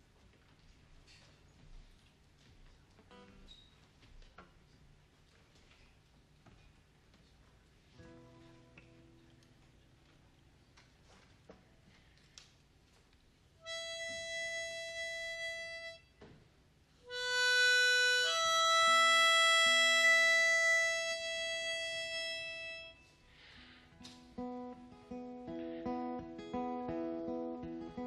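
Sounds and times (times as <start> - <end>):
harmonica long held notes: 13.6 - 16.2, 17.0 - 28.0
acoustic guitar notes: 17.1 - 28.0.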